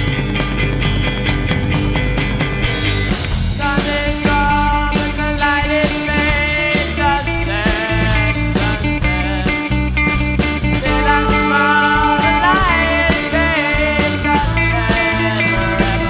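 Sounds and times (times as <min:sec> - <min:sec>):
drum kit: 0:00.0 - 0:16.0
electric and acoustic guitars: 0:00.0 - 0:16.0
alto saxophone: 0:10.8 - 0:16.0
boy singing into microphone: 0:10.8 - 0:16.0.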